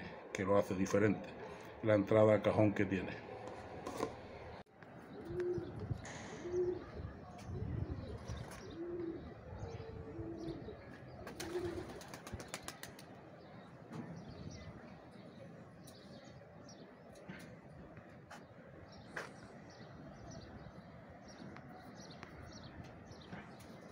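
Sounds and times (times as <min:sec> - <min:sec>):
pigeons cooing: 0:05.1 - 0:13.0
wing flapping: 0:11.2 - 0:13.2.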